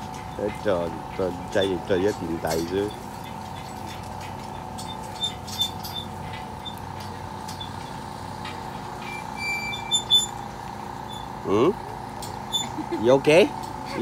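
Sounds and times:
whining mechanical hum: 0.0s - 14.0s
short high squeaks: 2.6s - 8.0s, 9.0s - 11.7s, 12.4s - 12.9s.

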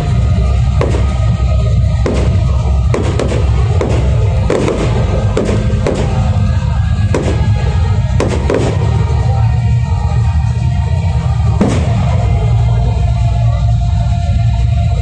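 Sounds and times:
loud music: 0.0s - 15.0s
fireworks bangs: 0.6s - 9.2s, 11.6s - 12.4s.

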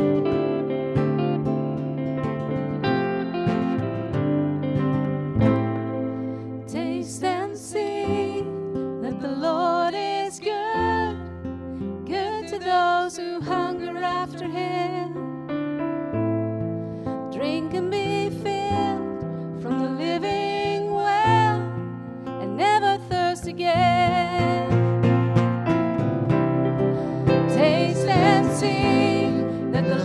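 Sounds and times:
acoustic guitar: 0.0s - 30.0s
electric guitar: 0.0s - 30.0s
keyboard: 0.0s - 30.0s
woman singing: 6.7s - 11.4s, 12.0s - 15.3s, 17.3s - 21.8s, 22.4s - 24.9s, 27.3s - 30.0s.

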